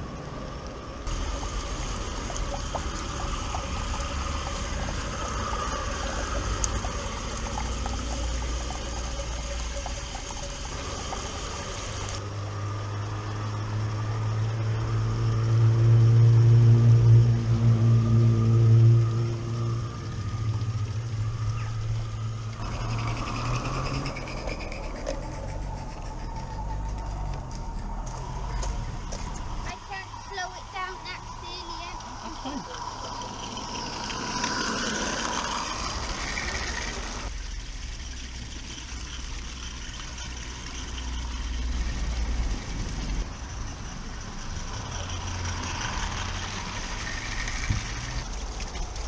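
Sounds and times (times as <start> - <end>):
steady low hum: 0.0 - 49.0
model trains running on track: 22.5 - 49.0.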